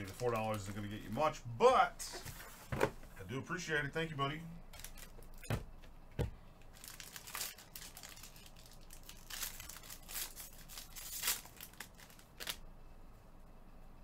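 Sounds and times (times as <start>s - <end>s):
foil wrapper crinkling and tearing: 4.8s - 5.5s, 6.7s - 12.6s.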